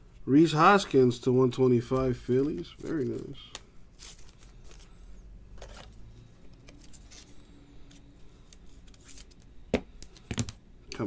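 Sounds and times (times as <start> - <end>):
low steady hum: 0.0 - 11.0
plastic card sleeves crinkling: 1.8 - 10.5.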